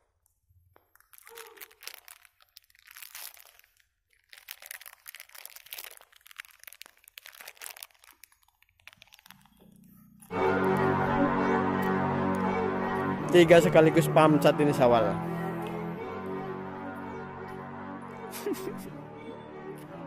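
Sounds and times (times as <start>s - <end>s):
crunching and crackling: 0.8s - 10.3s.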